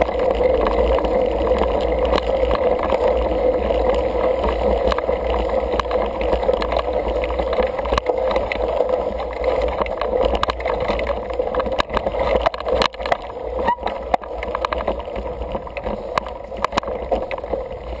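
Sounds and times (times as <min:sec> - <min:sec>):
bike tyre noise on dirt: 0:00.0 - 0:18.0.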